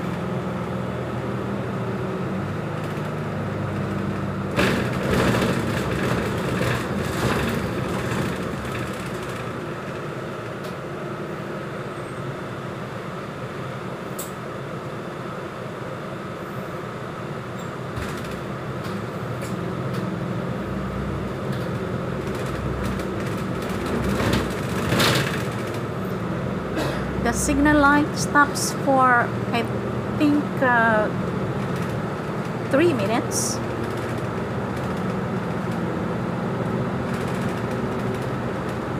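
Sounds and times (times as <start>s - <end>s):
bus engine: 0.0s - 38.9s
road noise: 0.0s - 38.9s
knocks and rattles: 4.5s - 9.6s, 21.6s - 25.9s.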